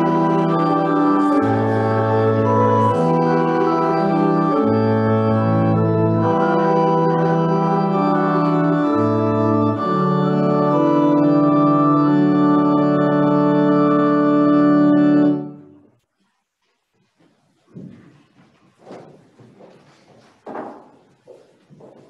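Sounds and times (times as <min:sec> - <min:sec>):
organ playing sustained chords: 0:00.0 - 0:15.9.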